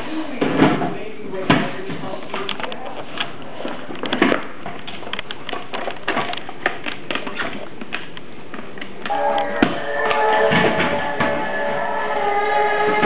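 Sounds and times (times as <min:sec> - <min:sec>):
dog claws clicking on wooden floor: 0:02.2 - 0:09.0
music: 0:09.1 - 0:13.0.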